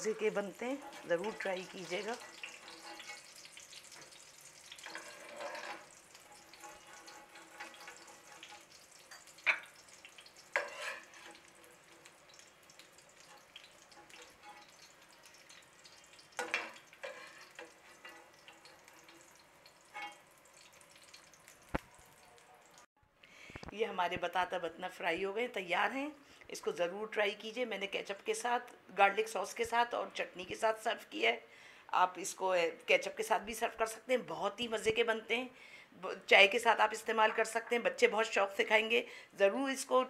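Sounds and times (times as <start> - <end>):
metal spoon scraping a pan: 0.0 - 21.3
potatoes sizzling in oil: 0.0 - 22.9.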